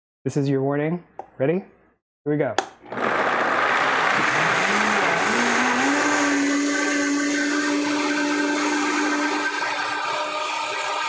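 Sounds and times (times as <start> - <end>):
blender motor whirring: 2.8 - 11.0.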